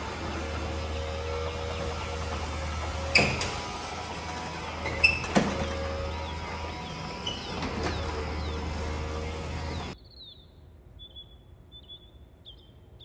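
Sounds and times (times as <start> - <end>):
garage door motor hum: 0.0 - 10.0
metallic clanks of door panels: 4.8 - 6.2.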